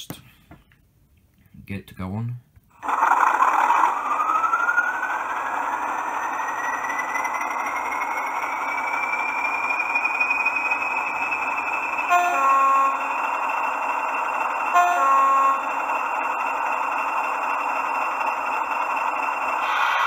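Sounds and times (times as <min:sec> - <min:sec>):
model diesel engine sound: 0:02.8 - 0:20.0
high whistle rising in pitch: 0:03.2 - 0:20.0
two-note horn blasts: 0:12.1 - 0:13.1, 0:14.7 - 0:15.7.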